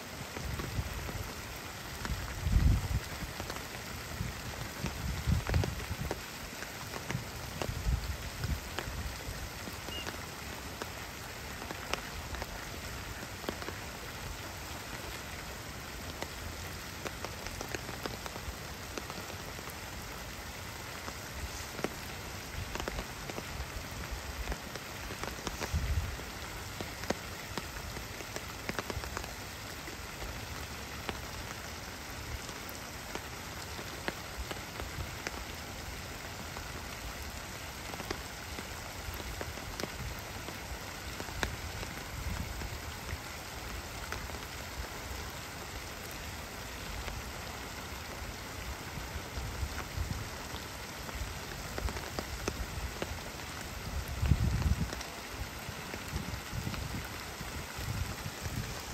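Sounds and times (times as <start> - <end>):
rain falling on pond and grass: 0.0 - 58.9.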